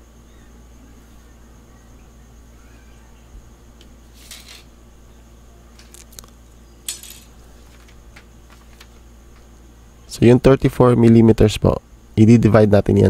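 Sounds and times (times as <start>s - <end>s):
steady low hum: 0.0s - 13.0s
metal tools scraping and clinking: 4.2s - 4.7s, 5.8s - 7.9s.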